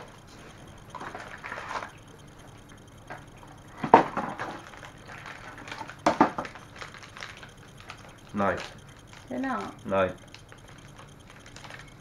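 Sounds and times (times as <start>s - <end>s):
packaging rustling: 4.1s - 9.3s, 10.6s - 11.9s
wrapping crackling: 4.4s - 12.0s.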